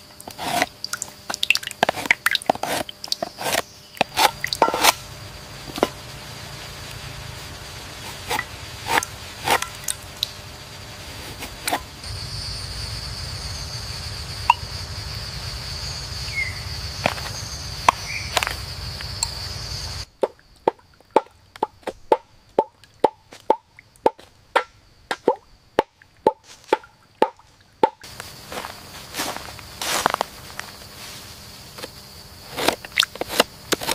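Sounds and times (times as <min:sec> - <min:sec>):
steady high hum: 0:00.0 - 0:20.2, 0:27.6 - 0:33.9
latex dripping into a cup: 0:00.2 - 0:04.7.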